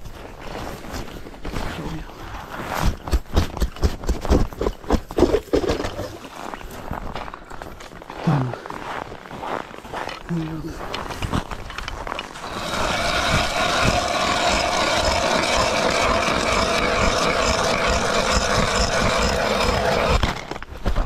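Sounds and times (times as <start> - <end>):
ice auger drilling through ice: 2.6 - 6.6, 10.9 - 21.0.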